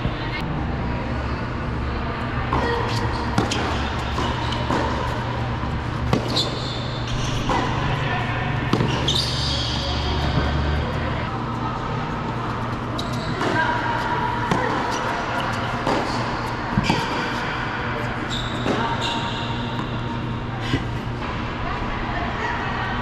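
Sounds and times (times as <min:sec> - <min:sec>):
shoe squeaks: 0:06.1 - 0:08.0, 0:08.7 - 0:10.7, 0:12.9 - 0:13.8, 0:18.1 - 0:20.1.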